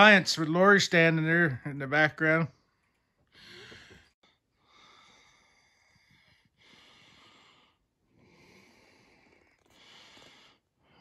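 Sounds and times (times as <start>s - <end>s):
breathing through the nose: 3.2s - 11.0s.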